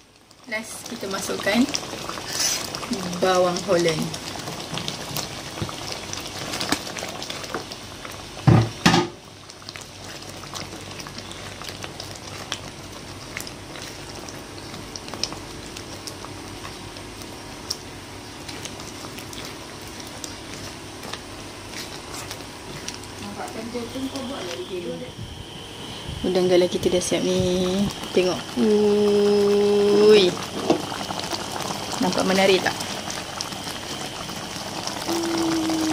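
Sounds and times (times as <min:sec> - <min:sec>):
sauce bubbling in a pan: 0:00.0 - 0:24.7, 0:25.3 - 0:35.9
spatula stirring: 0:02.1 - 0:03.0.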